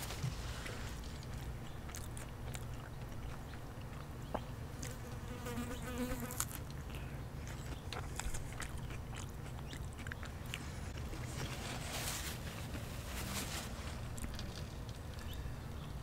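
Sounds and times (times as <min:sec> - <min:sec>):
lettuce crunching: 0:00.0 - 0:05.0, 0:06.3 - 0:12.1
biting and chewing food: 0:00.0 - 0:13.1, 0:13.9 - 0:15.9.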